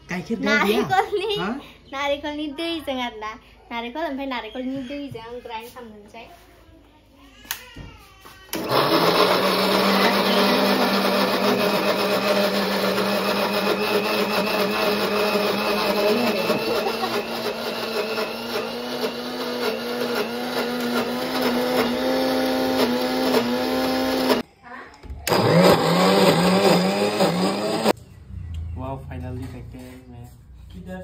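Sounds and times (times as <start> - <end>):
mixer grinder motor humming: 8.5 - 24.4, 25.2 - 28.0.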